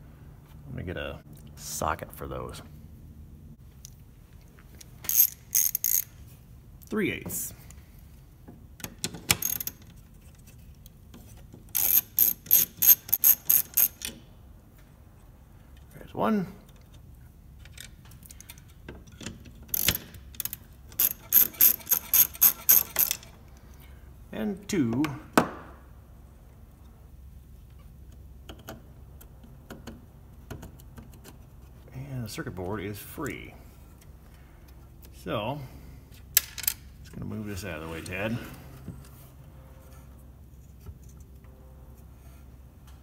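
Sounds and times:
ratchet wrench clicking: 0:05.0 - 0:06.1, 0:09.3 - 0:09.9, 0:11.7 - 0:14.2, 0:19.7 - 0:23.3.

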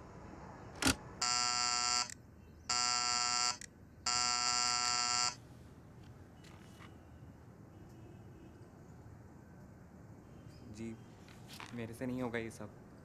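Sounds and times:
doorbell buzzer: 0:01.2 - 0:02.1, 0:02.7 - 0:05.4.

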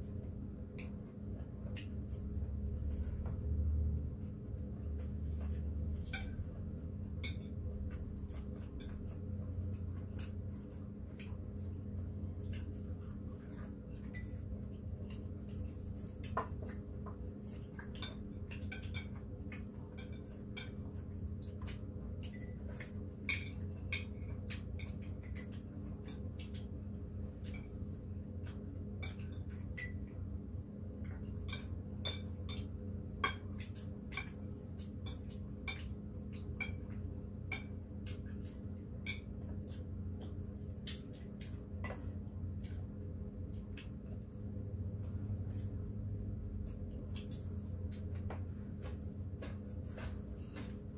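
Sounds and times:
steady low hum: 0:00.0 - 0:50.9
cutlery clinking on plates: 0:21.7 - 0:26.6, 0:31.3 - 0:34.4.

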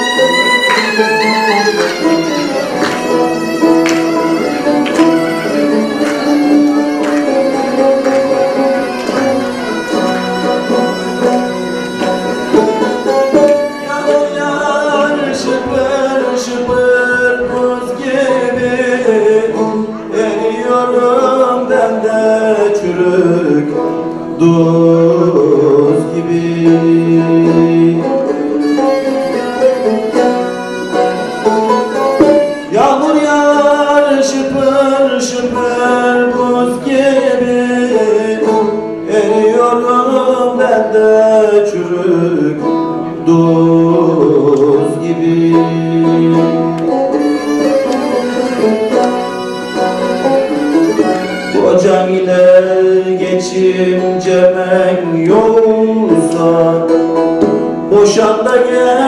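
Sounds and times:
bowed fiddle: 0:00.0 - 0:59.0
long-necked lute strumming: 0:00.0 - 0:59.0
man singing: 0:12.6 - 0:30.3, 0:31.2 - 0:49.2, 0:50.2 - 0:59.0.

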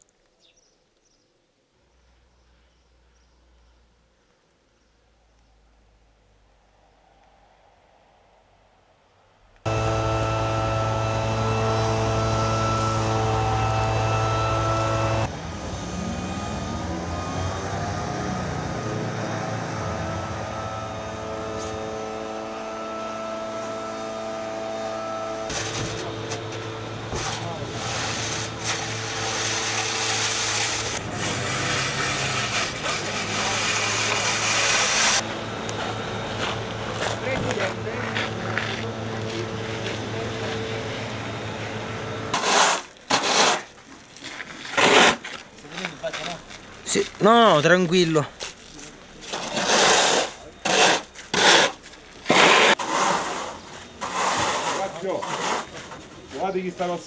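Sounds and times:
engine hum: 0:05.6 - 0:49.4
machine drone: 0:09.6 - 0:42.4
snow shovel scraping on asphalt: 0:20.3 - 0:23.8, 0:25.4 - 0:57.0.

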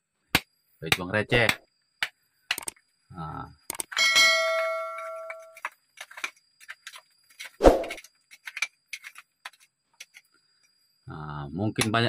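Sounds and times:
hammer ringing on chisel: 0:04.0 - 0:05.6.

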